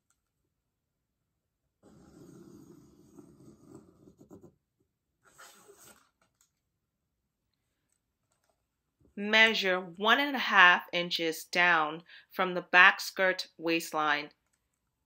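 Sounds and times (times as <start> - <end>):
pencil scratching on paper: 1.8 - 6.2
plastic ruler sliding on paper: 5.2 - 6.2.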